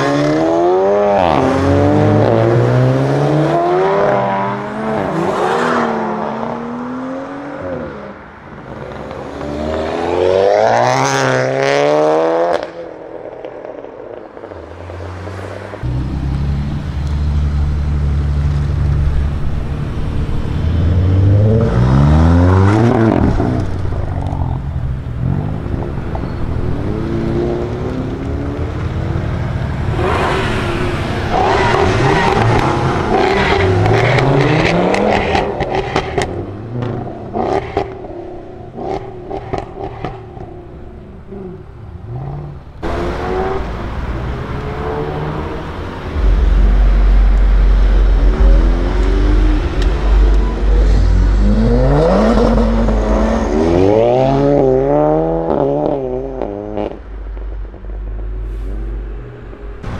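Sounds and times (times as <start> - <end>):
car engine revving and pulling away: 0.0 - 59.9
engine running at low revs: 40.2 - 59.9
car engine accelerating hard: 42.3 - 57.5.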